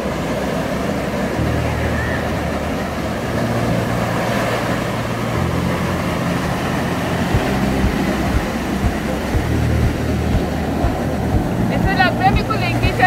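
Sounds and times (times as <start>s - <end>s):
surf washing onto beach: 0.0s - 13.0s
wind rumbling on microphone: 0.0s - 13.0s
low thumps from wind gusts: 5.1s - 13.0s.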